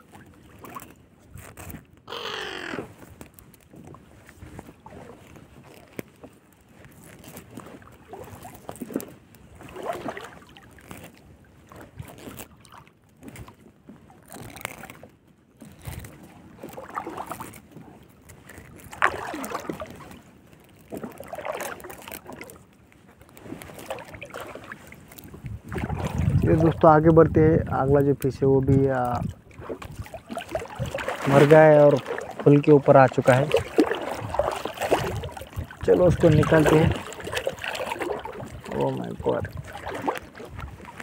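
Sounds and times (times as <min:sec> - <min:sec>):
water dripping and sloshing: 0:00.0 - 0:27.2, 0:27.8 - 0:41.0
net rustling against hull: 0:00.0 - 0:41.0.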